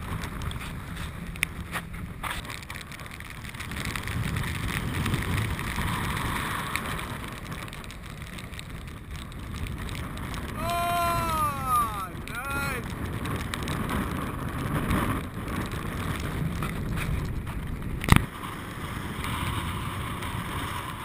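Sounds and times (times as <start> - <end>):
wind buffeting microphone: 0.0 - 21.0
choppy water rushing: 2.0 - 21.0
voice drawn-out call: 10.6 - 12.8.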